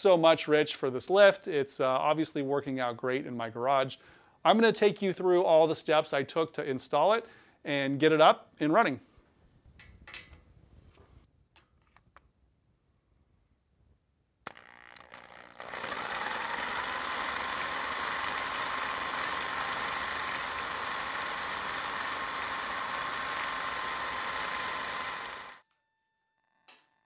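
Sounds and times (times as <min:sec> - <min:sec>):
electric drill whining: 0:14.5 - 0:25.6.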